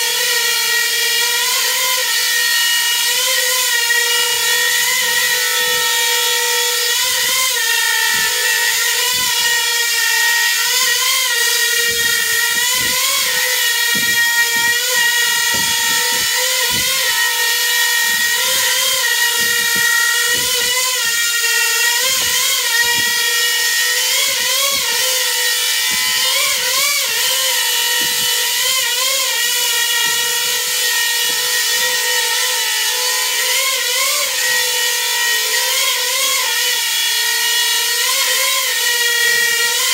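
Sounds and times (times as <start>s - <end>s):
drone motors whining: 1.2s - 39.9s.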